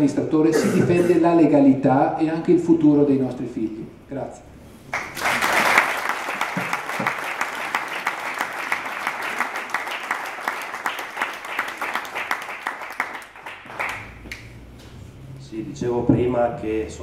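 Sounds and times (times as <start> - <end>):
audience applauding: 4.9 - 14.6.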